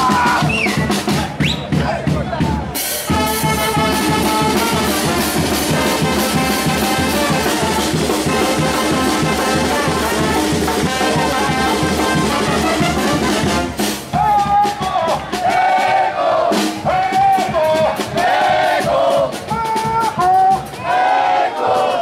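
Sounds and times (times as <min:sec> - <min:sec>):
people shouting: 0:00.0 - 0:02.2, 0:14.2 - 0:22.0
bass drum and cymbal beat: 0:00.0 - 0:15.8, 0:16.5 - 0:21.0
brass band playing: 0:00.0 - 0:22.0.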